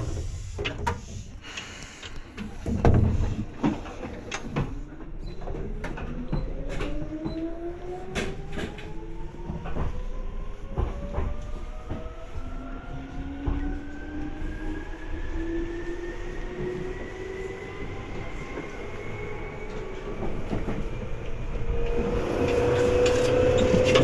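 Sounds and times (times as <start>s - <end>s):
train running rumble: 0.0s - 24.0s
train traction motors whining: 6.5s - 24.0s.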